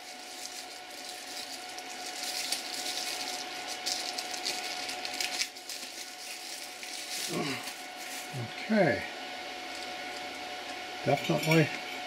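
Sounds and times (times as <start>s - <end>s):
plastic bag crinkling: 0.0s - 8.4s.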